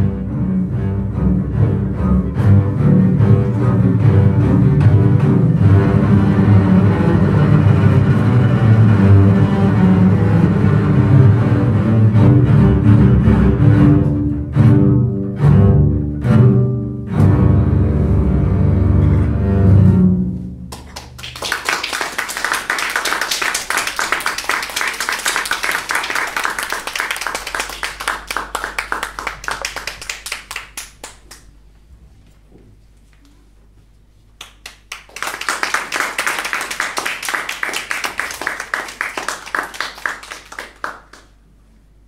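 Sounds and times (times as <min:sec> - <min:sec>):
small audience clapping: 0:20.7 - 0:31.6, 0:34.4 - 0:41.5.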